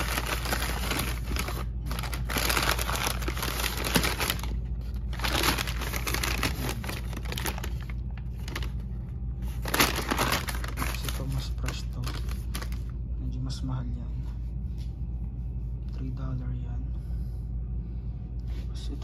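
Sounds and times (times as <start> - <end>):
grocery bags rustling: 0.0 - 8.8, 9.4 - 12.9.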